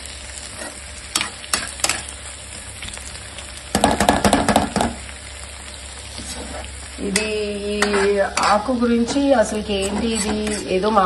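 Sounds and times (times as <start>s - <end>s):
vegetables sizzling in oil: 0.0s - 11.0s
spatula knocking on pan: 3.7s - 5.0s
scraping and crackling: 6.0s - 8.7s.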